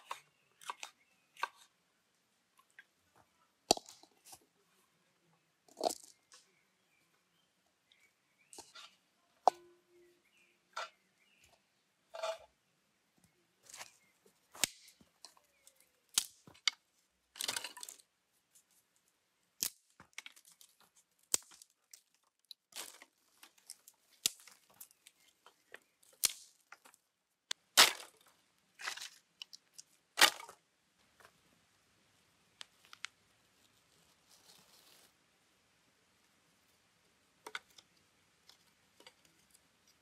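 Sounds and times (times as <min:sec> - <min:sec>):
sticks snapping: 0:14.6 - 0:16.8, 0:19.6 - 0:20.6, 0:21.3 - 0:25.2, 0:26.1 - 0:28.2
rustle of wood handled: 0:27.8 - 0:31.4, 0:32.7 - 0:35.2.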